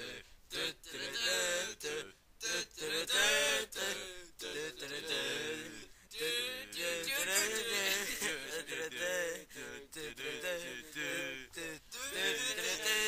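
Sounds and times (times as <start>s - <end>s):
man singing: 2.5s - 13.0s.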